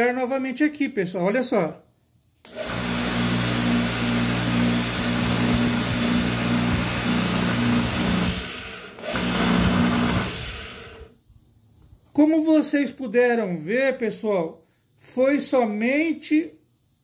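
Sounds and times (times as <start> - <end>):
pressure washer motor humming: 2.5 - 11.1.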